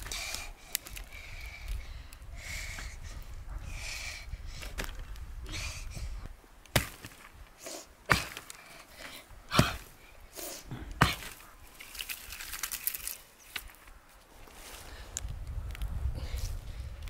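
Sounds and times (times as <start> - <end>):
axe chopping branch: 6.7 - 7.4, 8.1 - 8.6, 9.5 - 10.0, 11.0 - 11.4.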